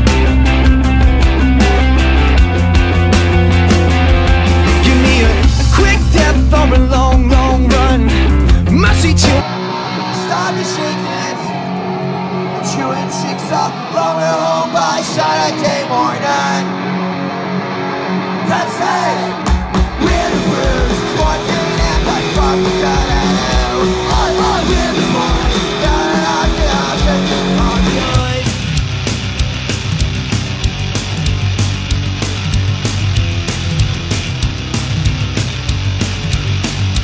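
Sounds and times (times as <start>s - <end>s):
bass and drums: 0.0s - 11.2s, 18.5s - 37.0s
electric guitars: 0.0s - 37.0s
person singing: 4.7s - 11.7s, 12.6s - 16.8s, 18.4s - 28.6s.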